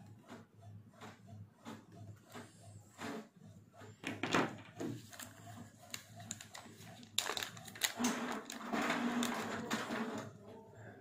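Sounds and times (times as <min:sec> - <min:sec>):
plastic bag crinkling: 0:05.1 - 0:09.8.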